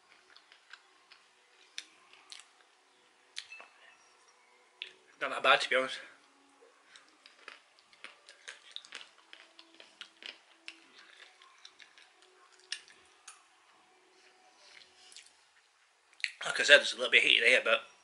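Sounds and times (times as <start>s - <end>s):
peanuts being crunched and chewed: 0.0s - 2.7s, 6.3s - 13.8s.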